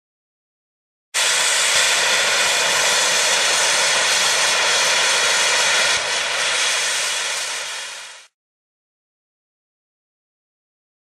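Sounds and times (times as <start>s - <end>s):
steam locomotive hissing: 1.2s - 8.4s.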